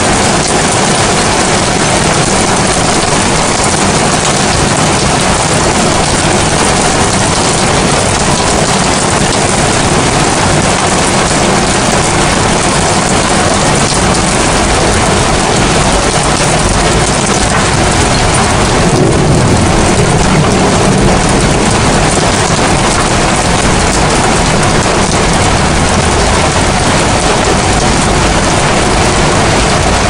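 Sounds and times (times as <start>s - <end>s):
heavy rain falling: 0.0s - 30.0s
low rumble: 13.8s - 30.0s.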